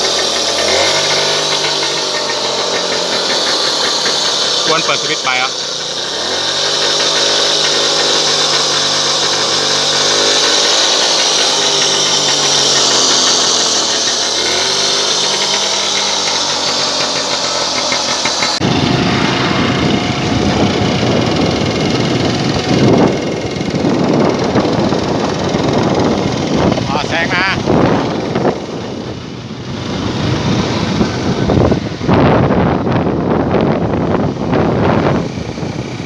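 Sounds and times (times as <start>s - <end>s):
road and wind rush: 0.0s - 36.0s
two-stroke engine revving: 0.0s - 36.0s.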